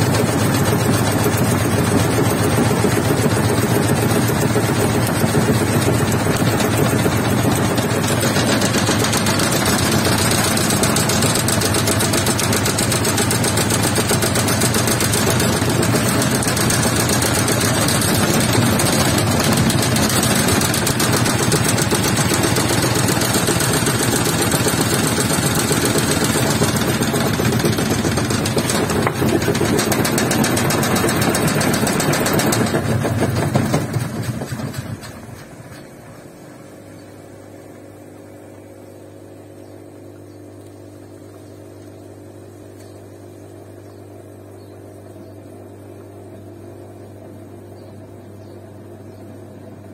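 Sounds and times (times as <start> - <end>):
washing machine drum rattling: 0.0 - 36.1.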